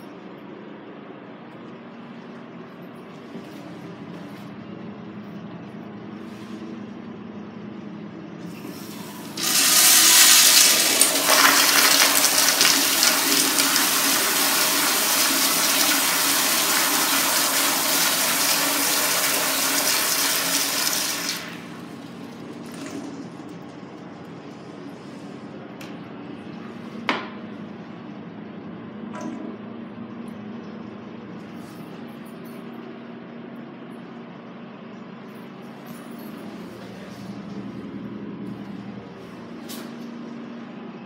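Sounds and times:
toilet flushing: 0:08.5 - 0:24.0.

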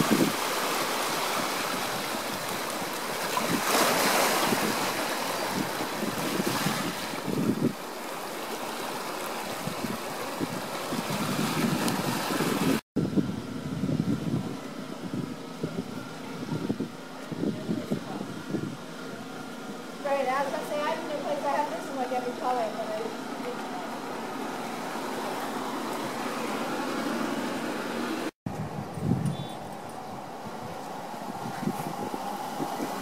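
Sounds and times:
wind on microphone: 0:00.0 - 0:00.6, 0:03.2 - 0:07.8, 0:09.5 - 0:18.8, 0:28.5 - 0:33.0
ocean waves washing on shore: 0:00.0 - 0:12.8, 0:20.0 - 0:33.0.

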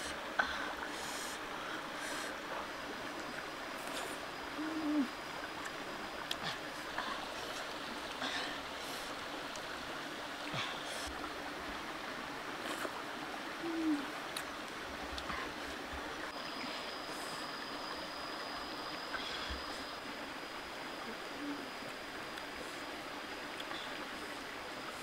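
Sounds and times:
rocky stream running: 0:00.0 - 0:25.0.

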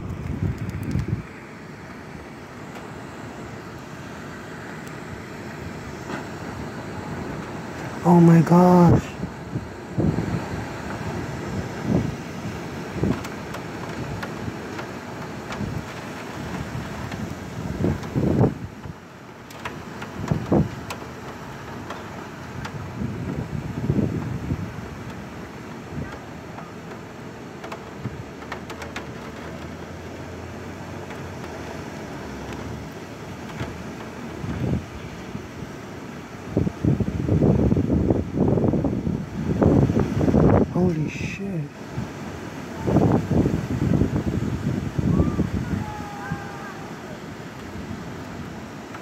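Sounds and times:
storm wind rushing: 0:00.0 - 0:01.5, 0:02.8 - 0:19.0, 0:21.6 - 0:25.3, 0:36.4 - 0:41.1, 0:41.9 - 0:48.2
wind gusts buffeting microphone: 0:00.0 - 0:49.0.

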